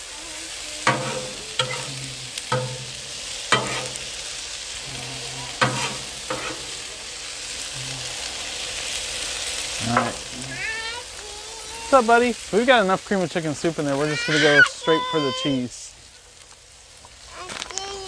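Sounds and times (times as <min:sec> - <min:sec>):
potatoes sizzling: 0:00.0 - 0:18.0
spatulas clanking on griddle: 0:00.8 - 0:07.1, 0:09.8 - 0:10.6.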